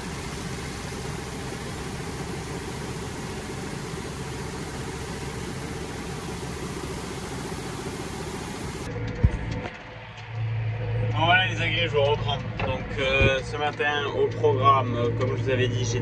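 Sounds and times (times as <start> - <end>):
grain pouring into metal trailer: 0.0 - 8.9
engine running: 0.0 - 9.2.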